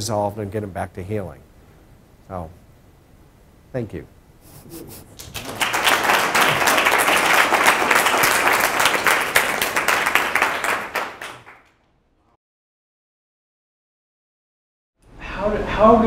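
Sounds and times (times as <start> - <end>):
audience applauding: 5.2 - 11.8.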